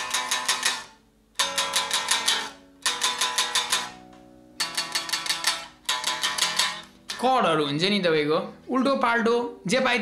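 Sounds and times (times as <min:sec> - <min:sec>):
electric guitar chords: 0:00.0 - 0:07.6.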